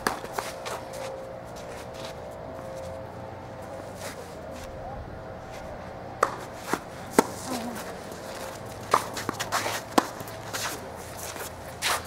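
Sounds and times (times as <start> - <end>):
footsteps shuffling on hard court: 0.0 - 3.0, 6.4 - 12.0
tennis ball pops: 6.2 - 7.4.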